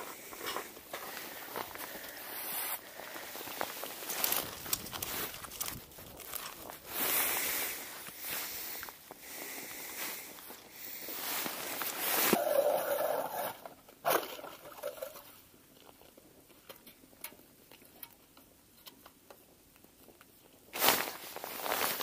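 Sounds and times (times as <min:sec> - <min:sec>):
rustling handling noise: 0:00.0 - 0:12.4, 0:20.7 - 0:22.0.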